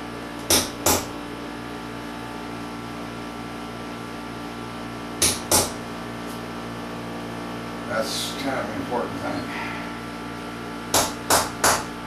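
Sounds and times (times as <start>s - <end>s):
steady low hum: 0.0s - 12.0s
hammer striking a punch: 0.4s - 1.1s, 5.2s - 5.8s, 10.9s - 12.0s.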